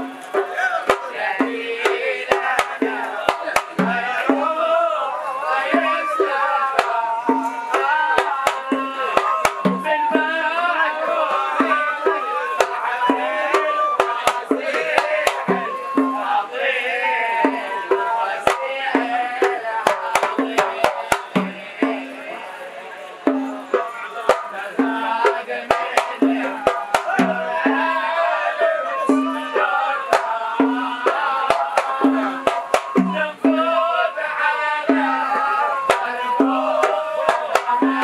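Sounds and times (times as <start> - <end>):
frame drums and hand drums: 0.0 - 38.0
men singing religious song: 0.0 - 38.0.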